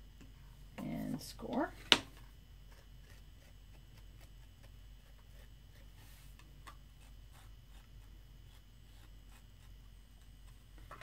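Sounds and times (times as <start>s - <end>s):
tool scratching clay: 2.6s - 10.8s.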